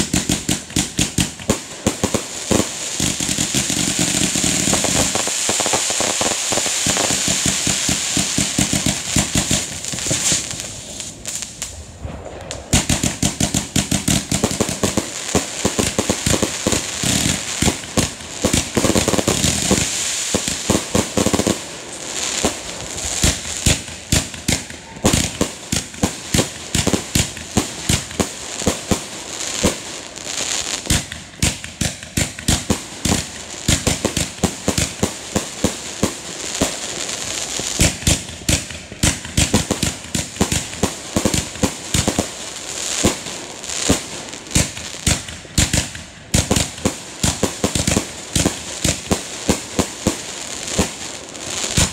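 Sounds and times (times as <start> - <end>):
crackling fireworks stars: 0.0 - 51.9
fireworks bangs: 0.0 - 51.9.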